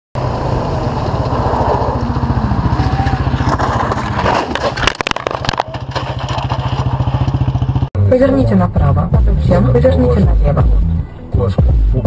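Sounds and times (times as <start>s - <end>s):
vehicle engine running: 0.2s - 12.0s
sharp knocks and clatter: 3.4s - 7.9s.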